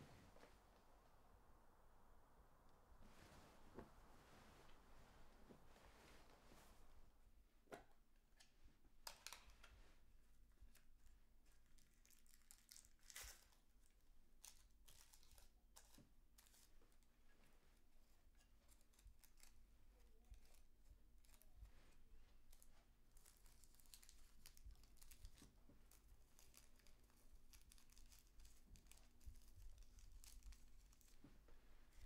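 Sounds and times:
faint low hum: 0.0s - 11.9s
rustling of cigarette paper: 10.7s - 17.1s, 18.0s - 32.0s.

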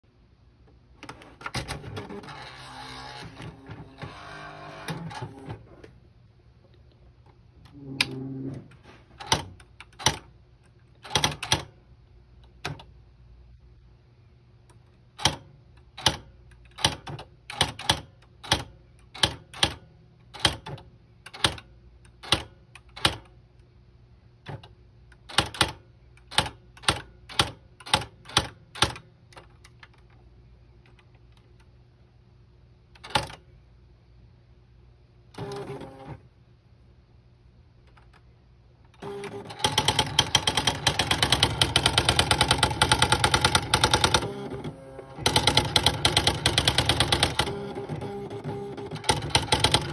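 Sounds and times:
steady low hum: 0.1s - 42.8s
typewriter mechanical noise: 1.0s - 5.7s, 9.2s - 10.3s, 10.9s - 11.8s, 15.2s - 23.3s, 24.5s - 30.1s, 33.0s - 33.4s, 38.9s - 49.9s
electronic typewriter strikes: 1.2s - 5.6s, 9.2s - 10.3s, 11.0s - 11.8s, 15.2s - 23.3s, 24.5s - 29.1s, 33.0s - 33.4s, 39.0s - 49.9s.

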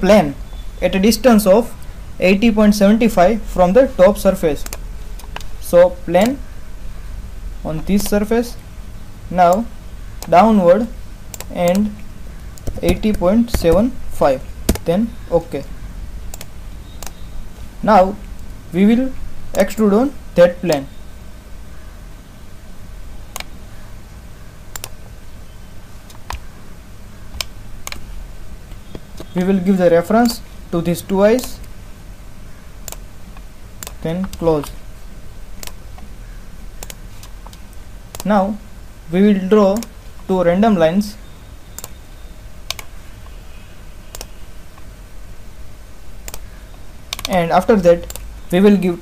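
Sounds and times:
low steady hum: 0.0s - 49.0s
computer mouse clicking: 4.6s - 5.5s, 11.3s - 13.9s, 14.7s - 14.9s, 16.3s - 17.2s, 23.3s - 23.6s, 24.7s - 25.0s, 27.3s - 28.0s, 32.8s - 34.8s, 35.6s - 36.1s, 36.8s - 38.3s, 39.7s - 39.9s, 41.8s - 42.0s, 42.7s - 43.4s, 44.1s - 44.9s, 46.2s - 47.4s, 48.0s - 48.3s.

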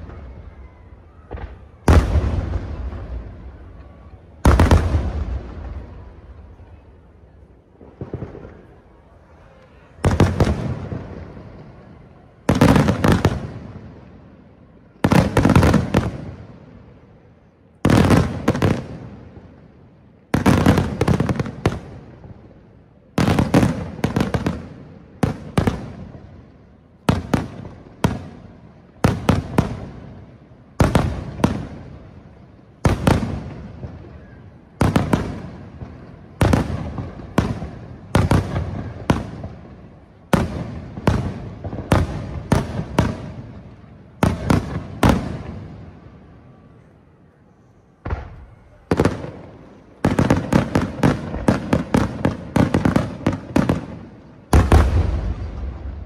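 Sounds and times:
firework crackling: 0.0s - 46.0s, 48.0s - 56.0s.

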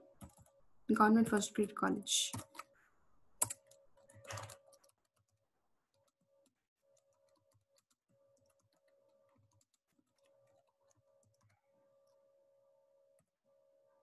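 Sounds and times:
keyboard typing: 0.1s - 0.6s, 2.2s - 2.7s, 3.4s - 11.6s.

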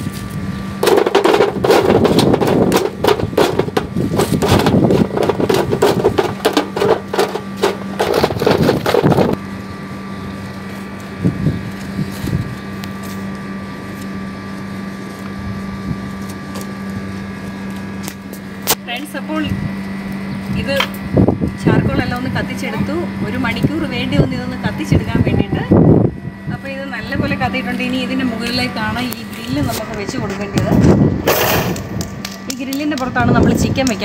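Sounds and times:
steady low hum: 0.0s - 34.0s
charcoal clattering into metal tray: 0.8s - 9.4s, 31.3s - 32.6s.

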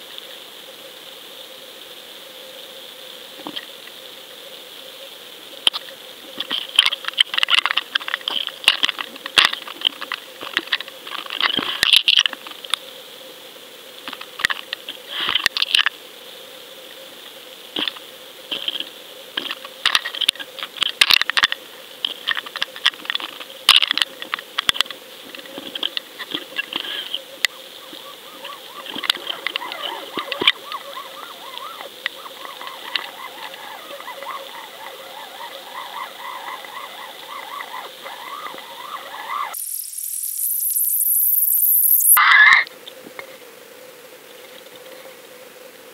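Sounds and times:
wavering warble: 27.4s - 42.6s.

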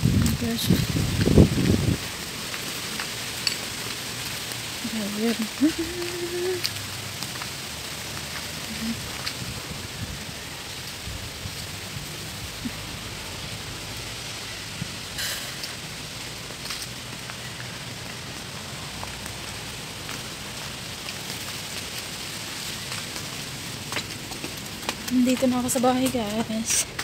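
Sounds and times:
outdoor ambient hiss: 0.0s - 27.0s.

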